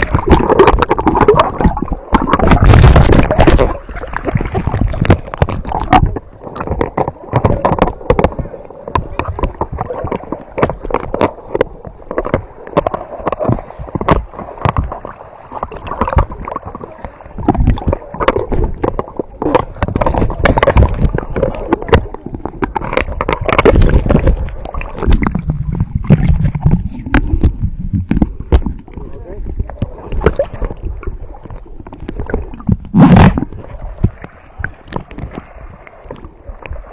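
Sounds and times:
splashy clicks: 0.0s - 28.9s
muffled underwater gurgling: 0.0s - 36.9s
water sloshing and splashing: 0.0s - 36.9s.

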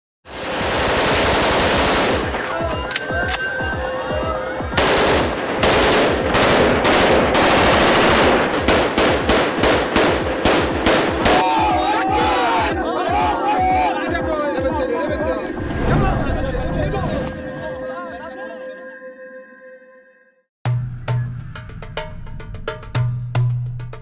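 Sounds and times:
rapid automatic gunfire: 0.3s - 2.4s, 4.8s - 11.3s.

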